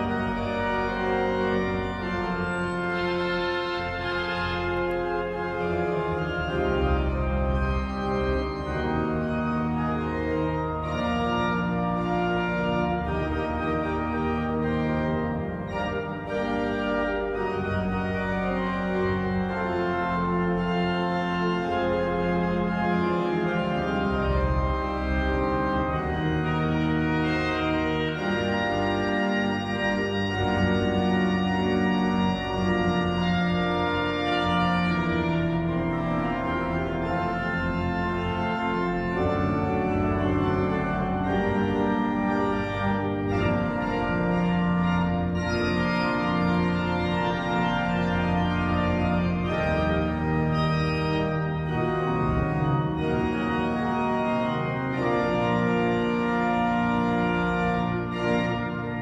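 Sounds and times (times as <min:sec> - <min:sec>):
pipe organ chords: 0:00.0 - 0:59.0.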